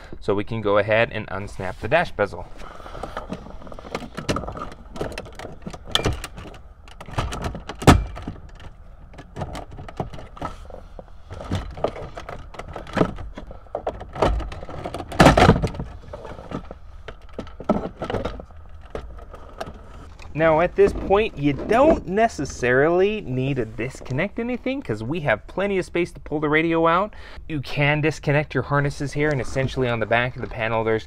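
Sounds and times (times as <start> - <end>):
plastic rattling and knocking: 3.0 - 22.0.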